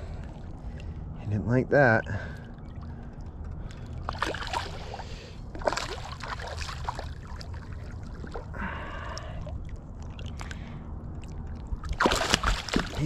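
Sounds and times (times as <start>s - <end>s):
water sloshing: 0.0s - 1.2s, 1.8s - 13.0s
fish splashing at the surface: 4.1s - 9.4s, 11.2s - 13.0s.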